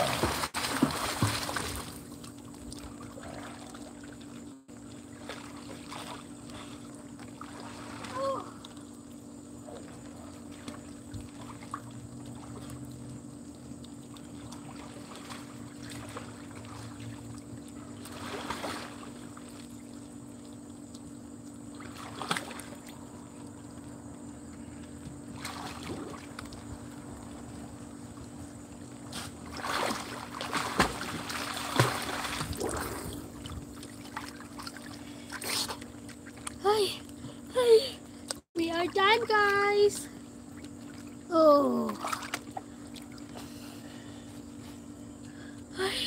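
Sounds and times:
swimmer splashing in pool water: 0:00.0 - 0:09.0, 0:13.9 - 0:20.5, 0:21.7 - 0:23.3, 0:25.2 - 0:37.0, 0:38.7 - 0:44.7
steady low hum: 0:00.0 - 0:46.0.

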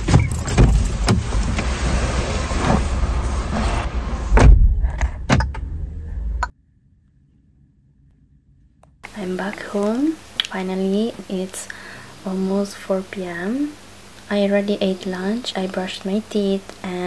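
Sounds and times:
low rumble: 0:00.6 - 0:06.5.

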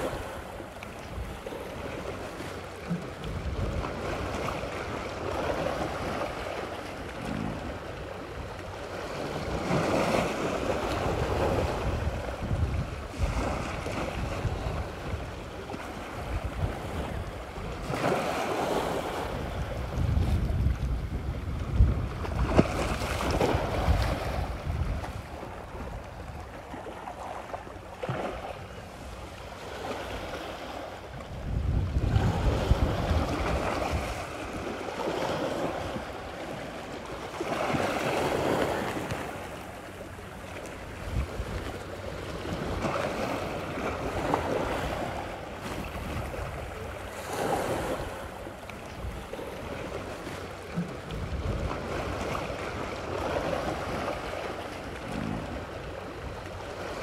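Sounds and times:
wind gusting on microphone: 0:03.2 - 0:06.4, 0:09.2 - 0:26.4, 0:30.2 - 0:36.2, 0:40.9 - 0:49.8, 0:51.0 - 0:54.4.

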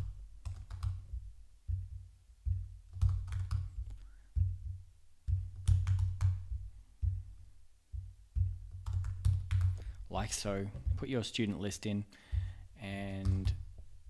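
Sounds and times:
typing on computer keyboard: 0:00.4 - 0:01.0, 0:02.9 - 0:04.0, 0:05.6 - 0:06.4, 0:08.8 - 0:09.8.

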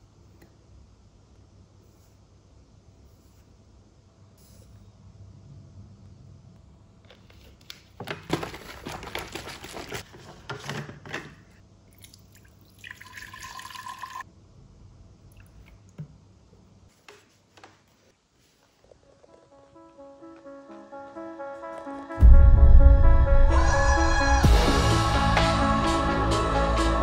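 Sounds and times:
water pouring into container: 0:11.9 - 0:14.2
music: 0:19.0 - 0:27.0.

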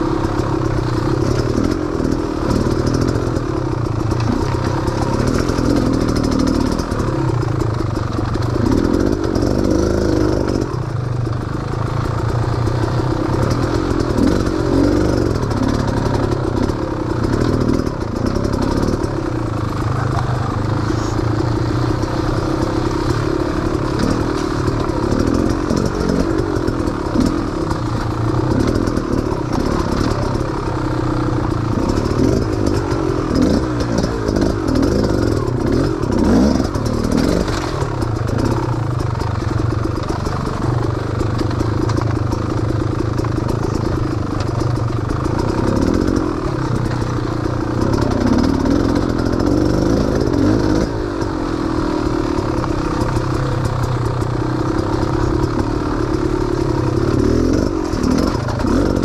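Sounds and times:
small off-road engine running: 0:00.0 - 0:59.0.

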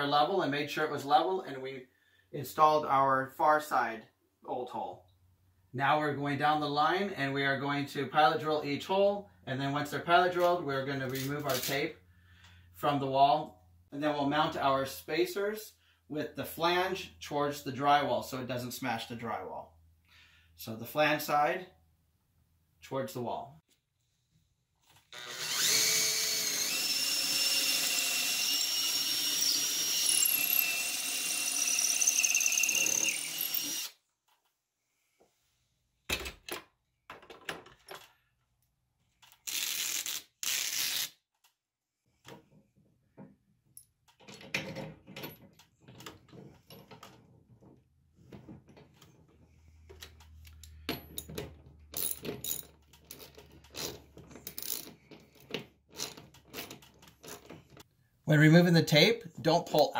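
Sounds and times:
cordless drill whining: 0:25.1 - 0:34.0
hardware clicking and rattling: 0:49.9 - 0:57.9.

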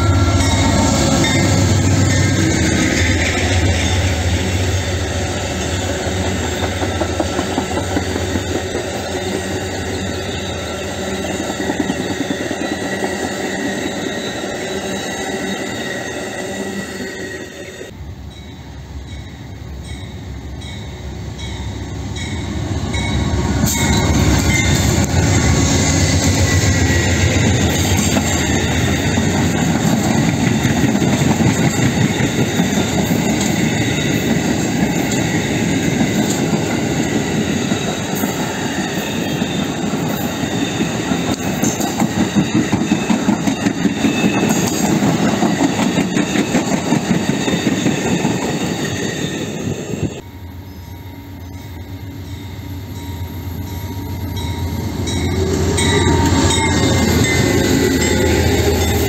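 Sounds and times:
passenger train rumbling past: 0:00.0 - 0:59.0
train wheels clickety-clack: 0:05.5 - 0:10.0, 0:11.0 - 0:14.1, 0:25.9 - 0:49.2.

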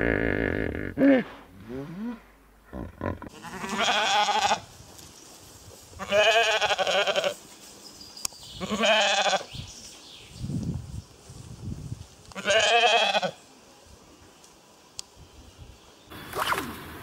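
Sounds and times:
sheep bleating: 0:02.7 - 0:04.6, 0:06.0 - 0:07.4, 0:08.6 - 0:09.5, 0:12.4 - 0:13.4.

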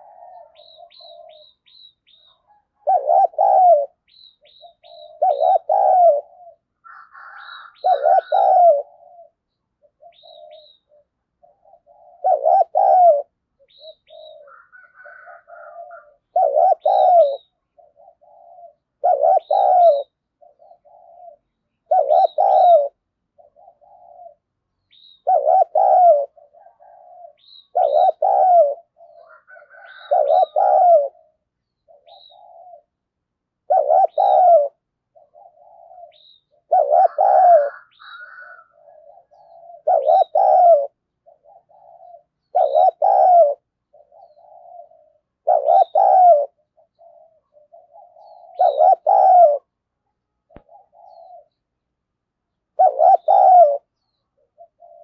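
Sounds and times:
dove cooing: 0:00.0 - 0:51.8, 0:52.6 - 0:55.0
small bird high chirps: 0:00.4 - 0:02.5, 0:03.9 - 0:06.0, 0:09.5 - 0:12.2, 0:19.4 - 0:25.8, 0:27.4 - 0:30.6, 0:31.6 - 0:32.9, 0:35.2 - 0:36.7.

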